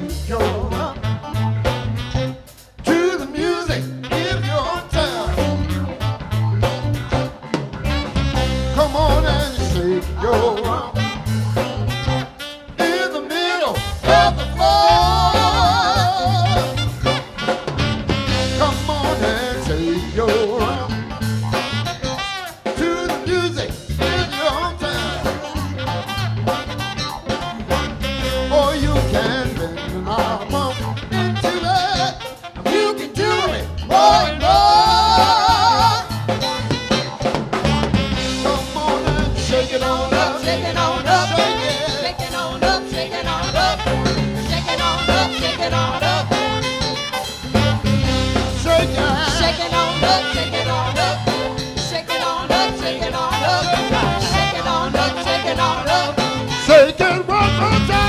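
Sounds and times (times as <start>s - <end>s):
bass guitar: 0.0s - 58.0s
drum kit: 0.0s - 58.0s
electric guitar: 0.0s - 58.0s
saxophone: 0.0s - 58.0s
person singing: 12.8s - 16.8s, 18.6s - 21.1s, 28.4s - 36.6s, 38.2s - 46.6s, 48.4s - 58.0s.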